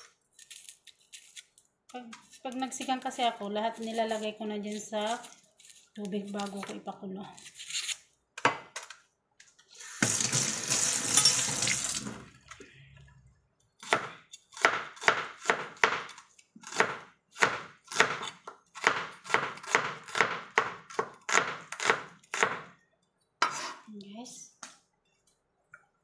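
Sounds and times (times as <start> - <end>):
water running: 9.8 - 12.4.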